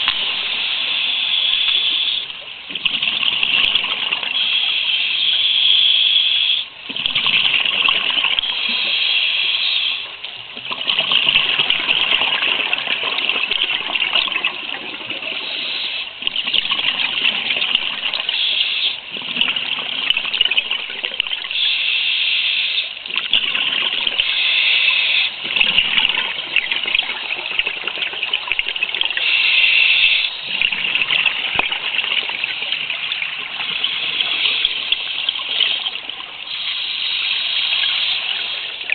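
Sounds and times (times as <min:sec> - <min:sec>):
regulator hissing breaths: 0:00.1 - 0:02.4, 0:04.3 - 0:06.7, 0:08.4 - 0:10.2, 0:15.2 - 0:16.2, 0:18.2 - 0:19.1, 0:21.5 - 0:23.0, 0:24.1 - 0:25.4, 0:29.1 - 0:30.6, 0:33.4 - 0:38.9.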